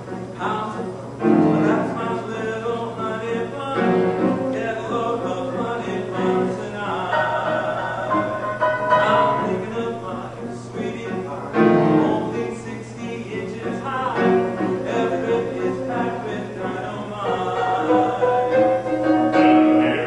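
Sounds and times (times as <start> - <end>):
mixed choir singing in harmony: 0.0 - 20.0.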